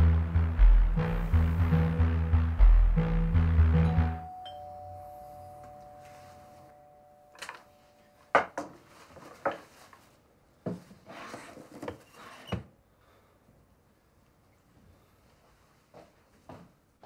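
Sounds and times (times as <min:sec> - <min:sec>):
two-tone doorbell chime: 0:03.8 - 0:08.3.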